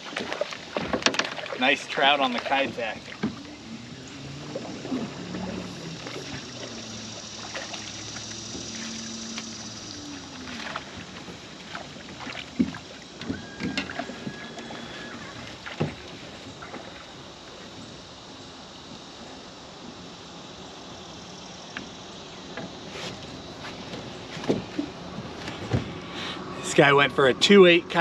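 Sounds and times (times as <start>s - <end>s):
knocks and thumps on a boat: 0.0s - 9.8s, 10.4s - 17.8s, 21.8s - 26.1s
water sloshing around a net: 0.0s - 18.8s
steady low hum: 1.4s - 13.5s.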